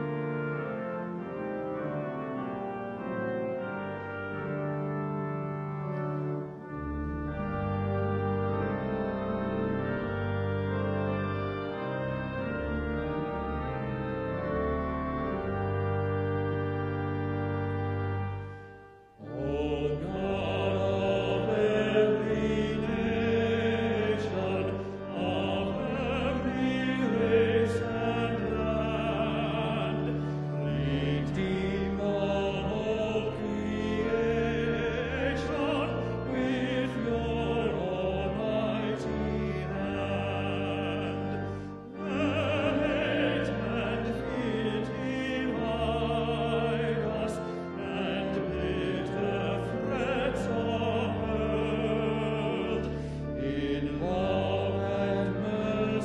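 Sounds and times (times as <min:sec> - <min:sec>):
organ accompaniment: 0:00.0 - 0:56.0
hymn sung with vibrato: 0:19.2 - 0:56.0.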